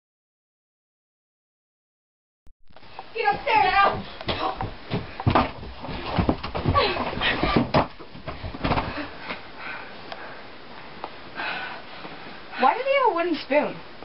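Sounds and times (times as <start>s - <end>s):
thumps of hurried movement: 2.8s - 9.4s
door knocking and banging: 3.3s - 9.0s.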